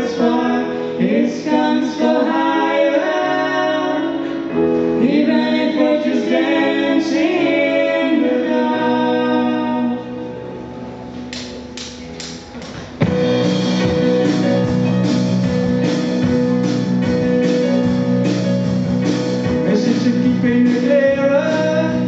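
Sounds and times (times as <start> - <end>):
woman singing: 0.0 - 4.2, 5.0 - 10.1
man singing: 19.4 - 22.0.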